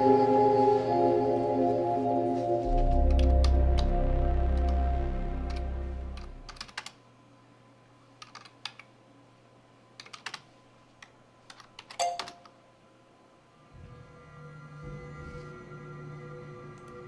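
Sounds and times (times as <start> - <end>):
low ambient music drone: 0.0 - 6.7, 13.5 - 17.0
computer keyboard typing: 6.2 - 7.0, 8.2 - 8.9, 10.0 - 10.4, 11.0 - 12.5.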